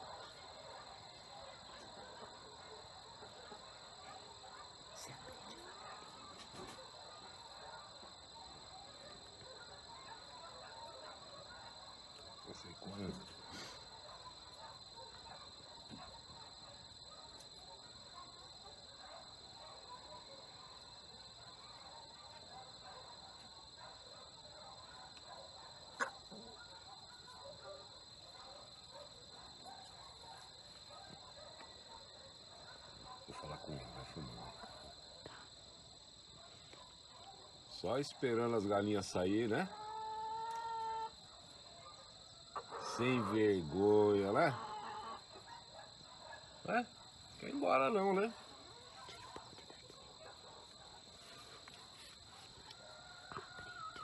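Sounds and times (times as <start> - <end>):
insects droning: 0.0 - 54.0
chickens clucking softly: 25.2 - 26.8, 39.4 - 41.2, 42.5 - 45.5, 52.7 - 54.0.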